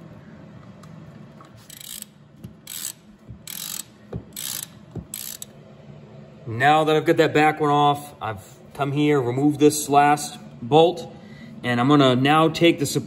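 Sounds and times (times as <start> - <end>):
ratchet pawl clicking: 1.6 - 5.5.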